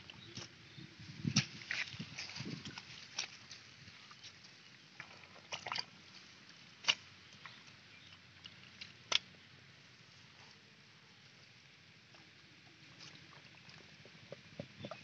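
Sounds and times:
splashes in muddy water: 5.0s - 6.0s
hands squelching in wet mud: 5.4s - 6.1s.

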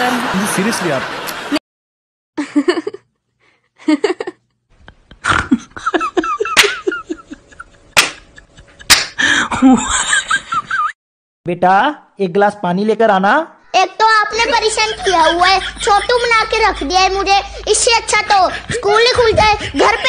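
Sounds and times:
woman laughing: 2.4s - 3.1s, 3.8s - 11.0s, 14.6s - 17.0s.

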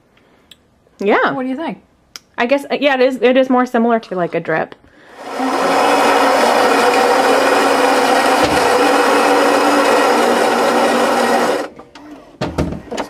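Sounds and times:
coffee grinder grinding beans: 5.1s - 11.7s.

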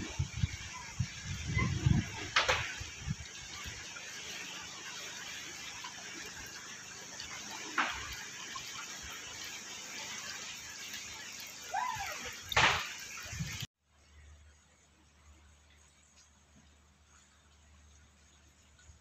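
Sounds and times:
moving water: 0.0s - 19.0s.

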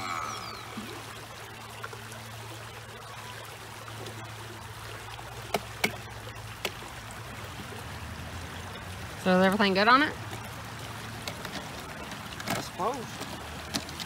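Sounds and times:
creek running over rocks: 0.0s - 14.0s
plastic boat clicks: 11.2s - 14.0s.

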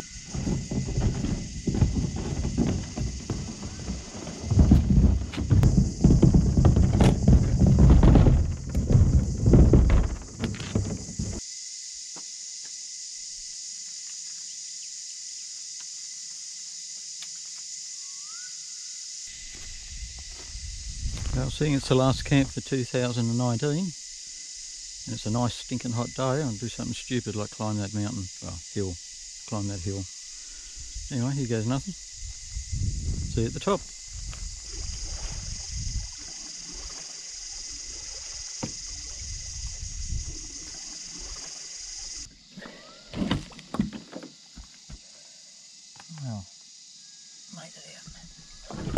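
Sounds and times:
kayak paddling: 0.0s - 11.4s, 33.9s - 45.0s
high-pitched insect chorus: 0.0s - 48.9s
wind buffeting microphone: 0.2s - 11.4s, 19.8s - 22.6s, 32.0s - 36.8s, 38.8s - 40.7s
faint steady tone: 46.4s - 48.7s.

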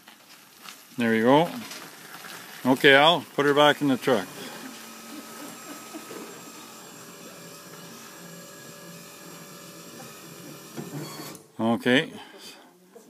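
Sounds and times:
hydraulic pump humming: 3.5s - 11.5s.

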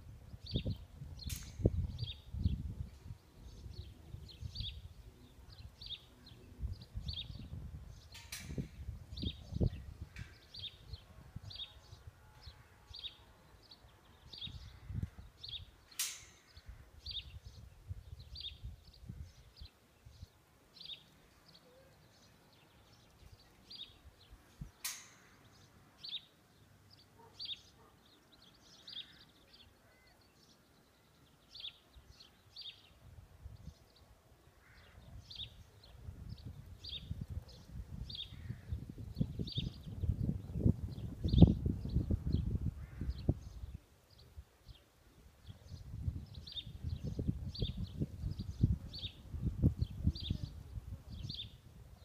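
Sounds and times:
wind rumbling on microphone: 0.0s - 12.7s, 14.0s - 20.4s, 33.0s - 34.0s, 34.6s - 44.8s, 45.4s - 52.0s
bird chirping: 0.3s - 51.6s
sharp clicks: 24.8s - 25.3s.

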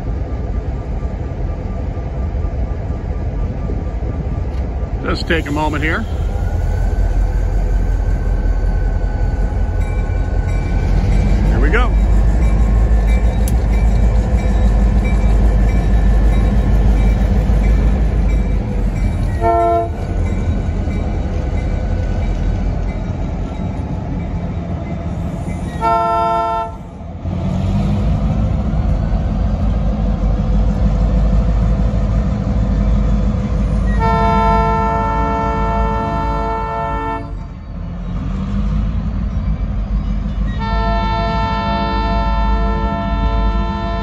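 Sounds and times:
diesel locomotive engines rumbling: 0.0s - 44.0s
train air horn blasts: 19.4s - 20.0s, 25.8s - 26.8s, 34.0s - 37.4s, 40.6s - 44.0s.

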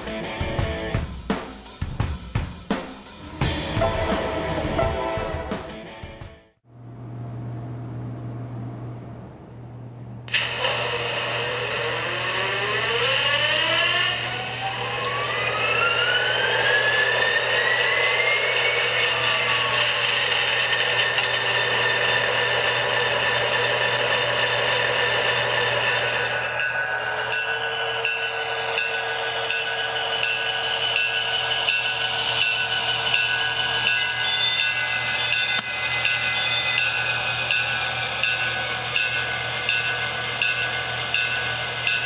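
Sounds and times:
low steady hum: 6.7s - 10.3s
model locomotive engine sound: 10.3s - 42.0s.

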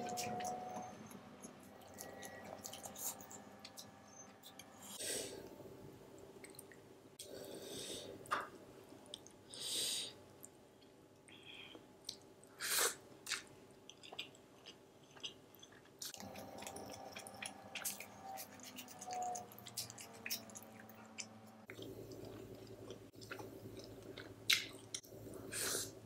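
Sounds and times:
close chewing with mouth smacks: 13.2s - 25.1s.

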